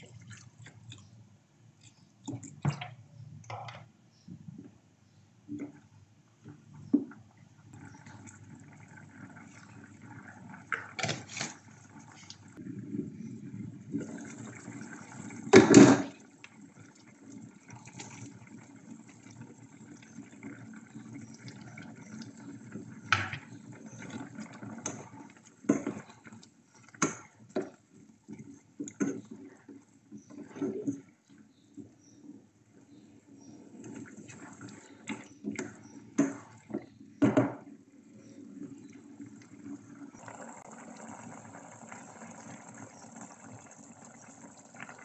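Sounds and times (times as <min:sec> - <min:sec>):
sauce bubbling in pot: 0:05.6 - 0:45.0.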